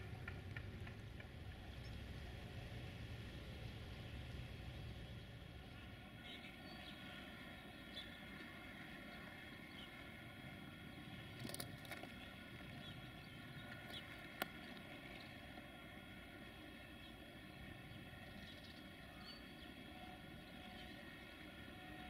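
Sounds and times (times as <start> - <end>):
steady mechanical hum: 0.0 - 22.0
bird chirps: 17.9 - 21.0.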